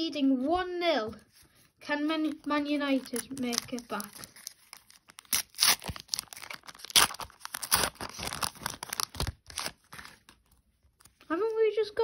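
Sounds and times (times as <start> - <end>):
wrapper tearing and crinkling: 2.3 - 11.2.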